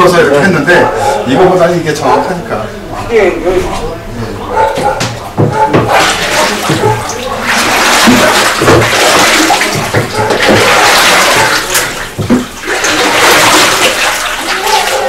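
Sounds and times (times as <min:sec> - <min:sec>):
liquid sloshing in a vat: 0:04.6 - 0:15.0.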